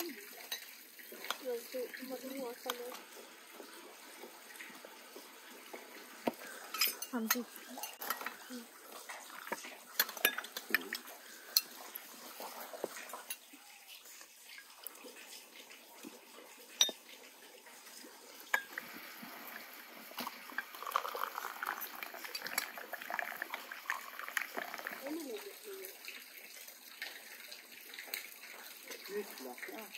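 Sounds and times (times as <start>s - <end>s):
tea pouring into glass: 0.0s - 15.2s, 17.9s - 29.9s
clinking glasses and cutlery: 6.6s - 8.4s, 9.5s - 11.9s, 16.8s - 17.0s.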